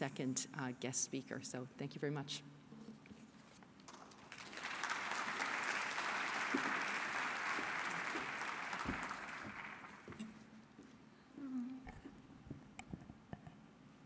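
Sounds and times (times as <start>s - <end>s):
audience applauding: 3.9s - 10.2s.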